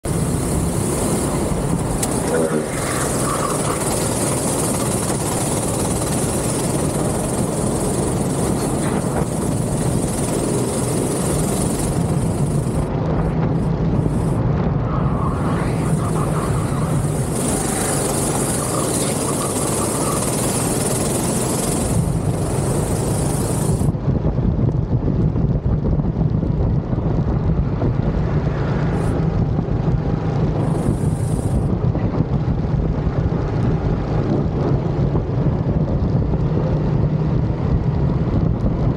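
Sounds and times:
go-kart engine droning: 0:00.0 - 0:12.9, 0:13.6 - 0:23.9
wind noise on microphone: 0:00.0 - 0:38.9.

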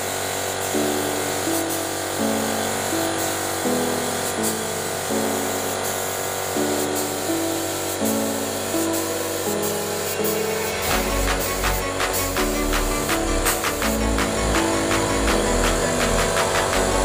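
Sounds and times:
music with repeating melody: 0:00.8 - 0:17.0
steady beat: 0:09.5 - 0:17.0.

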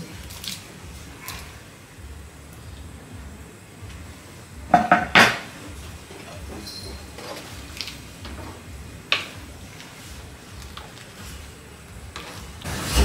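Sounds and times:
kitchen hum: 0:00.0 - 0:13.0
utensils tapping a cooking pot: 0:04.7 - 0:05.5.

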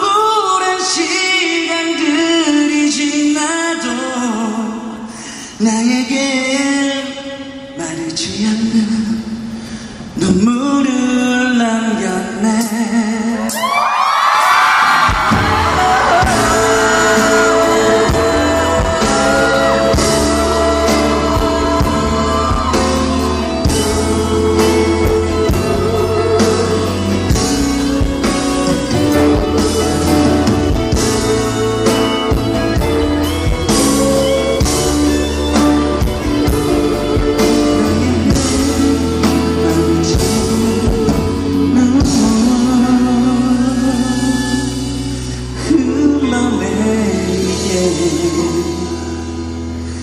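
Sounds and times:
man singing: 0:00.0 - 0:13.8, 0:14.8 - 0:49.9
fans screaming: 0:13.5 - 0:25.0
band playing with drums and bass: 0:14.4 - 0:45.6.

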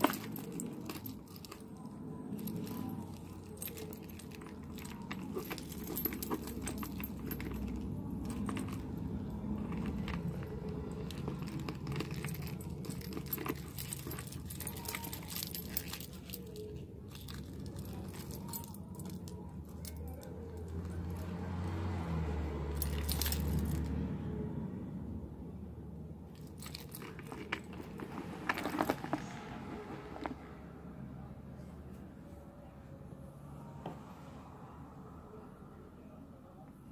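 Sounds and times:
metal charms and keys jingling: 0:00.0 - 0:23.9, 0:26.3 - 0:30.3.

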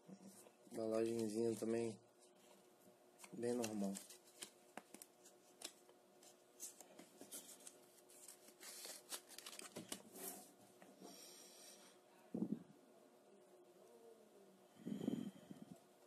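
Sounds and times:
plastic packaging crinkling: 0:03.2 - 0:10.2.

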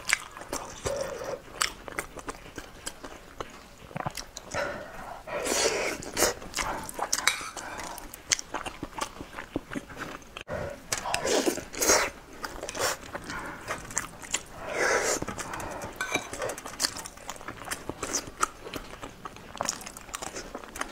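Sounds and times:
wet chewing and smacking: 0:00.0 - 0:20.9
metal spoon scraping ceramic bowl: 0:16.0 - 0:16.4.

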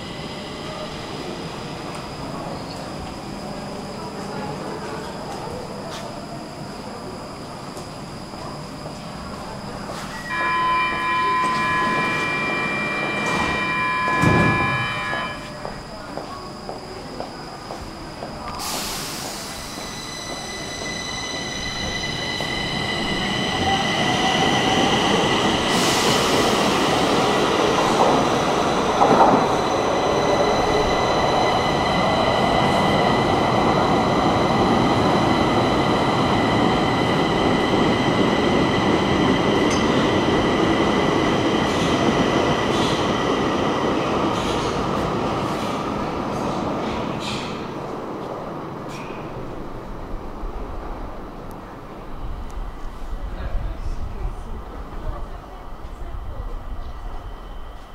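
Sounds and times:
train wheels rumbling on rail: 0:00.0 - 0:57.9
high-pitched wheel squeal: 0:10.1 - 0:15.6.

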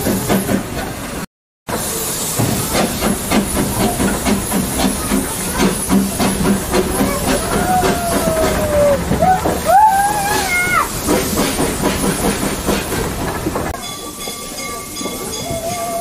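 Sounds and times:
steam hissing: 0:00.0 - 0:16.0
steam engine chuffing: 0:01.7 - 0:16.0.

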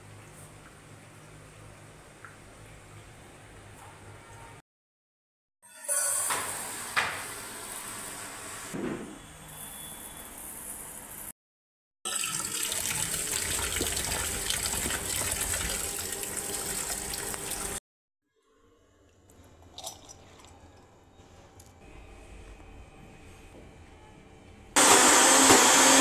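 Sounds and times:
tap water splashing into bowl: 0:12.1 - 0:15.8.

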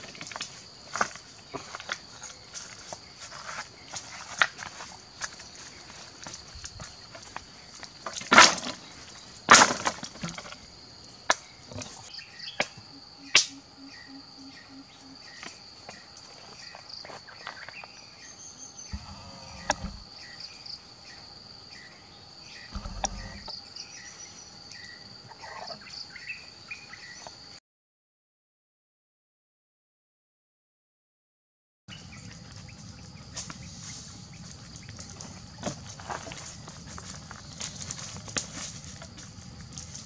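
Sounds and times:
high-pitched insect buzz: 0:12.7 - 0:15.6, 0:18.6 - 0:20.5.

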